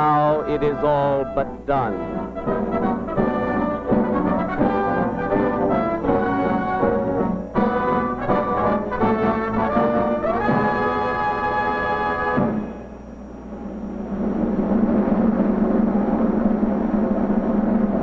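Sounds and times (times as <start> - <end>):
orchestral music with brass: 0.4 - 12.7.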